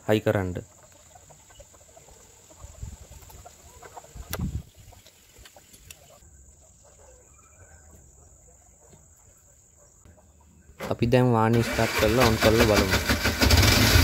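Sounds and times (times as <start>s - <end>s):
hen clucking: 0.4s - 10.8s.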